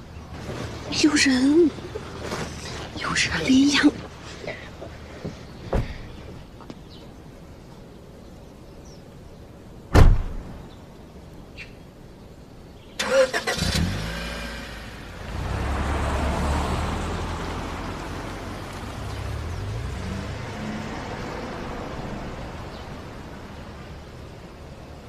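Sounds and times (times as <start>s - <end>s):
car engine starting and revving: 13.0s - 22.8s.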